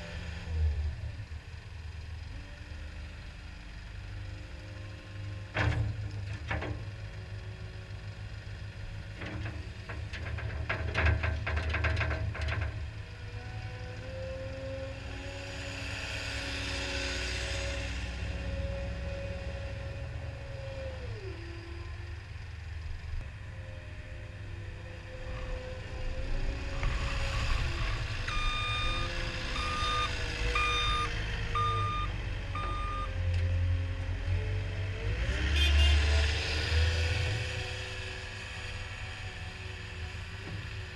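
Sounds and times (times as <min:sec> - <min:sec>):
diesel engine running under load: 0:00.0 - 0:40.9
back-up alarm beeping: 0:28.3 - 0:33.1.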